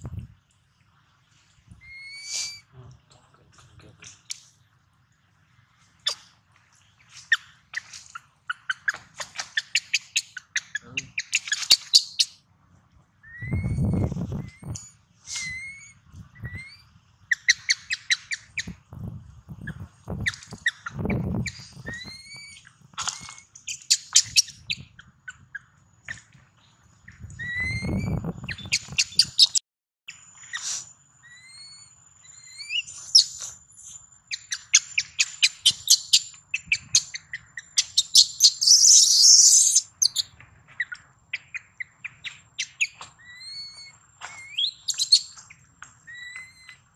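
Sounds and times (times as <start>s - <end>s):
baby monkey crying: 1.8s - 2.6s, 37.9s - 40.2s.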